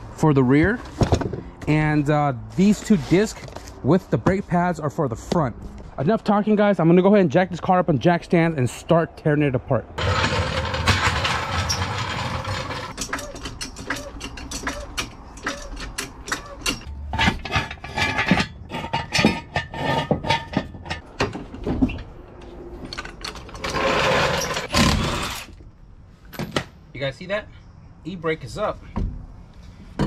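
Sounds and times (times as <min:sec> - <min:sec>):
steel jack clanking and ratcheting: 0:10.0 - 0:21.6, 0:22.9 - 0:25.6
jack rolling over concrete: 0:10.0 - 0:22.0, 0:22.8 - 0:25.6.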